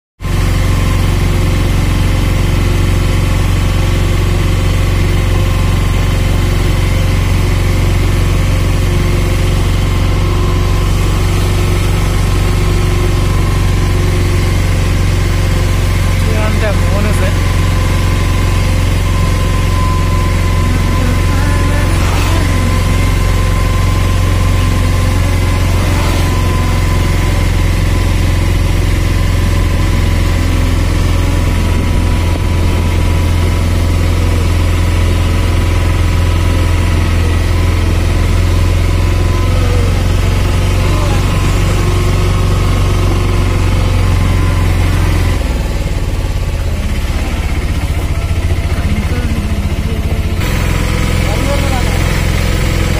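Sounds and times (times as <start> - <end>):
vehicle engine droning: 0.2 - 52.9.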